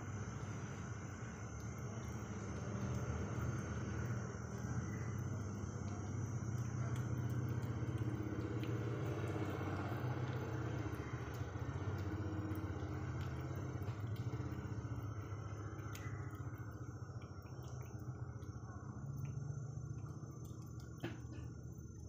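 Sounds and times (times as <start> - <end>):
faint clicks: 10.1 - 19.4.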